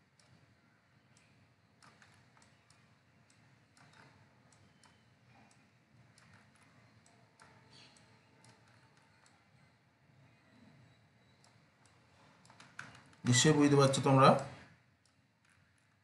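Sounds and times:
computer mouse clicks: 0:00.2 - 0:00.5, 0:01.1 - 0:09.4, 0:11.2 - 0:13.3, 0:14.3 - 0:16.0.

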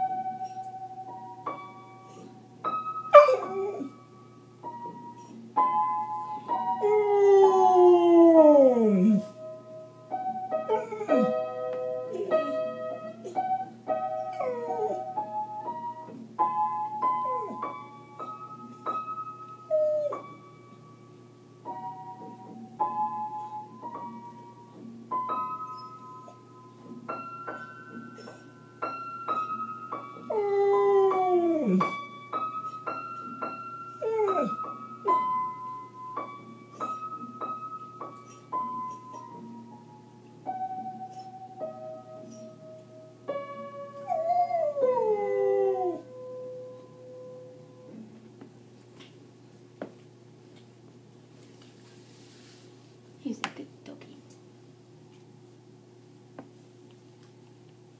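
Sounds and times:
piano melody: 0:00.0 - 0:50.4
dog howling: 0:06.8 - 0:09.3, 0:30.3 - 0:31.9, 0:34.0 - 0:34.6, 0:44.0 - 0:46.1.

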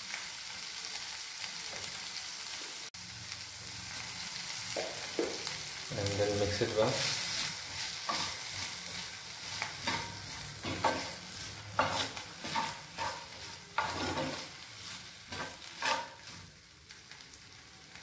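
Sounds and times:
light sizzle: 0:00.0 - 0:18.0
metal spatula scraping: 0:06.7 - 0:16.5.

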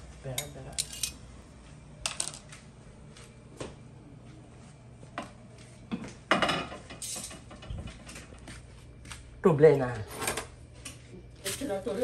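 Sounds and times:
metal tongs and cookware clinking: 0:00.3 - 0:01.2.

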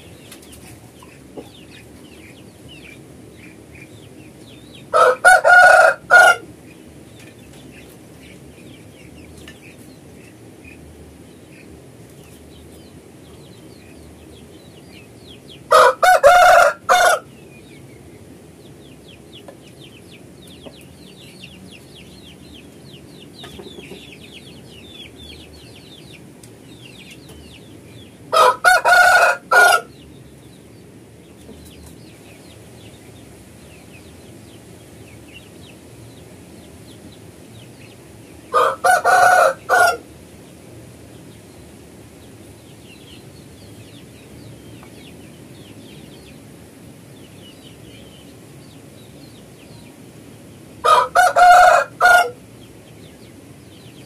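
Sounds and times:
rooster crowing: 0:04.9 - 0:06.5, 0:15.7 - 0:17.3, 0:28.3 - 0:30.0, 0:38.5 - 0:40.1, 0:50.8 - 0:52.4.

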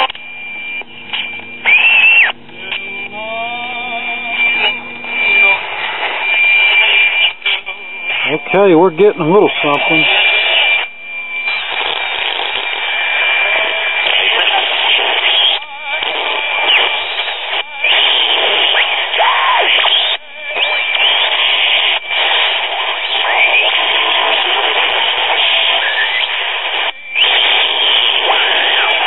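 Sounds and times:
high radio whistle: 0:00.0 - 0:03.2, 0:04.3 - 0:29.0
radio hiss and static: 0:00.0 - 0:29.0
sliding pitch whistles: 0:01.6 - 0:02.4.

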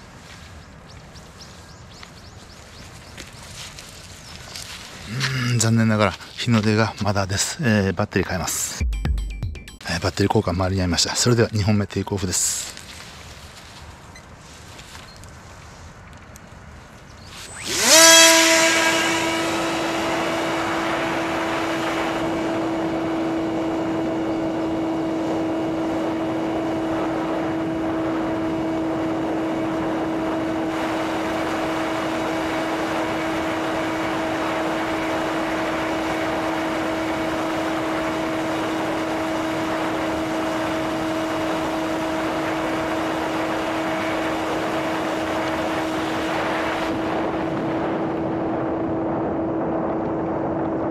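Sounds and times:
electric motor and propeller whine: 0:17.2 - 0:50.9.

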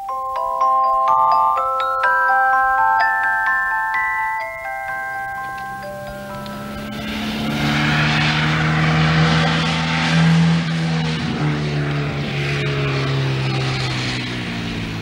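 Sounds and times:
road and wind noise: 0:00.0 - 0:15.0
sports car engine driving by: 0:04.6 - 0:15.0.

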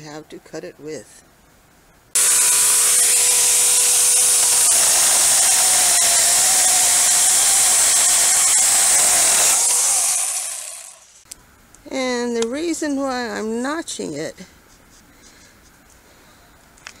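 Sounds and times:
mini chainsaw cutting wood: 0:02.2 - 0:11.0.

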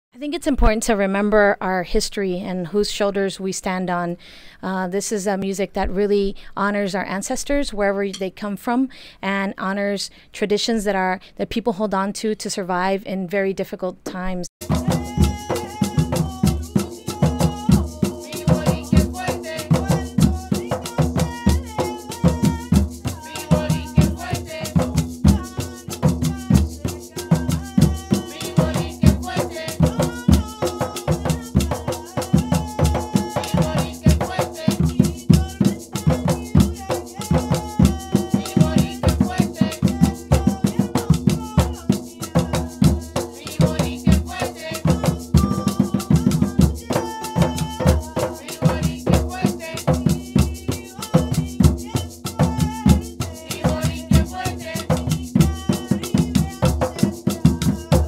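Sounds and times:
hand drums fast rhythm: 0:14.6 - 0:58.0
maraca shaking: 0:14.6 - 0:58.0
lead and chorus singing: 0:14.7 - 0:58.0.

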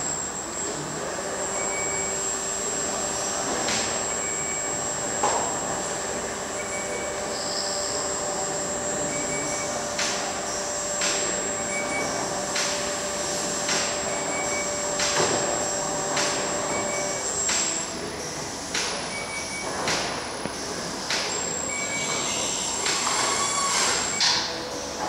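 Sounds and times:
held motor whine: 0:00.0 - 0:19.8
electric drives humming: 0:00.0 - 0:25.0.

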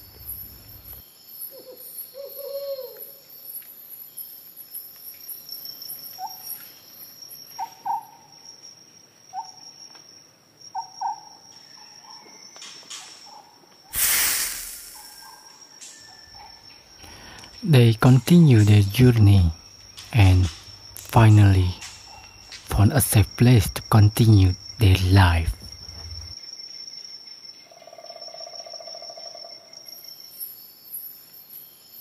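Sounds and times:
insects trilling: 0:00.0 - 0:32.0
bird hooting calls: 0:01.5 - 0:03.2, 0:07.6 - 0:08.3.

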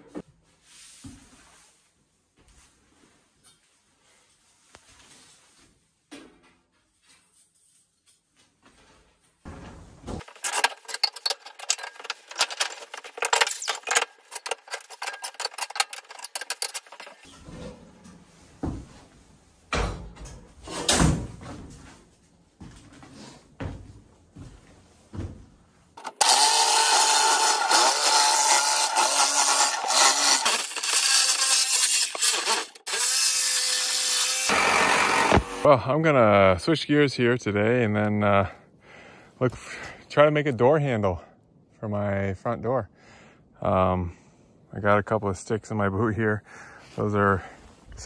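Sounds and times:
power saw cutting wood: 0:10.2 - 0:17.2, 0:26.0 - 0:35.7
stovepipe clicking and rattling: 0:10.2 - 0:17.3.

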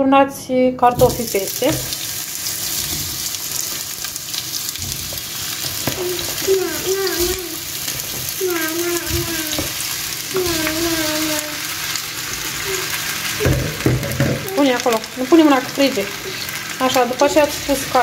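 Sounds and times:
potatoes sizzling in oil: 0:00.9 - 0:18.0
child's voice: 0:05.9 - 0:07.7, 0:08.4 - 0:11.7, 0:12.5 - 0:13.6.

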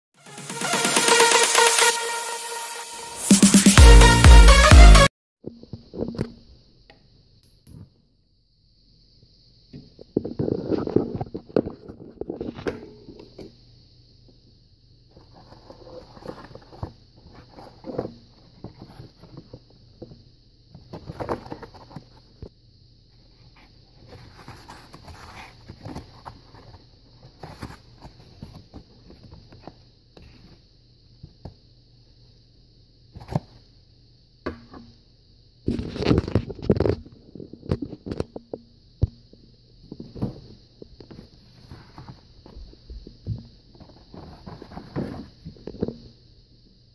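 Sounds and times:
egg carton scraping and rustling: 0:43.8 - 0:45.4.

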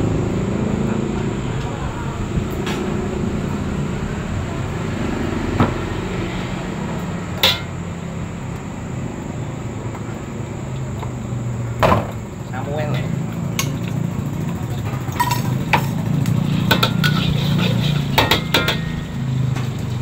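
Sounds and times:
utensils clanking against wok: 0:07.3 - 0:07.9, 0:12.9 - 0:20.0.

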